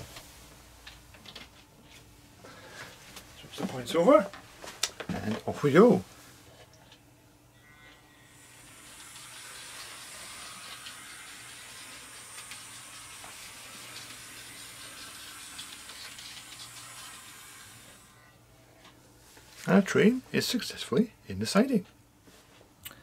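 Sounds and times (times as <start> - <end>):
model train motor whirring: 8.3 - 18.3.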